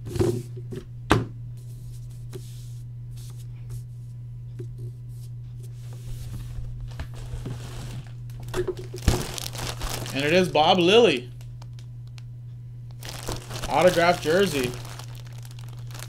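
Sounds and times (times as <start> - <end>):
low hum: 0.5 - 16.0.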